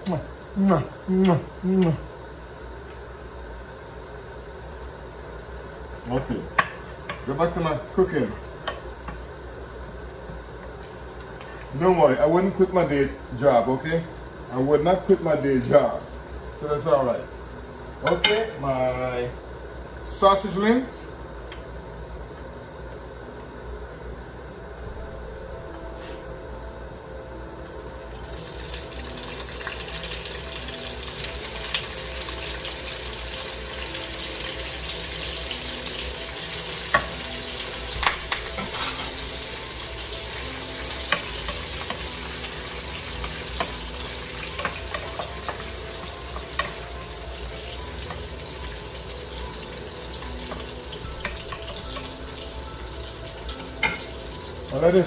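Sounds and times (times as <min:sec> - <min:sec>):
sausages sizzling in a frying pan: 0:27.6 - 0:55.0.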